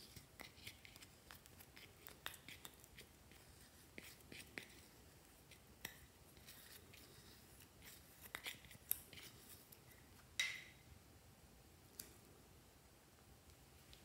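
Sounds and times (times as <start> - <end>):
spatula scraping eyeshadow: 0.0 - 9.9.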